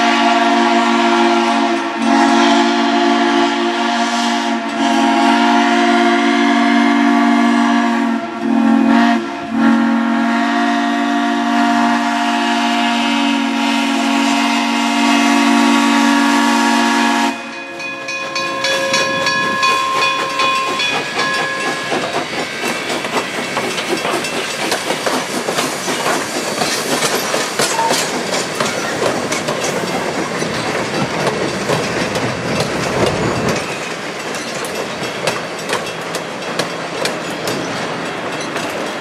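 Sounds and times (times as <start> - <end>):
steam locomotive whistle: 0.0 - 22.2
steam hissing: 0.1 - 39.0
locomotive running: 4.6 - 39.0.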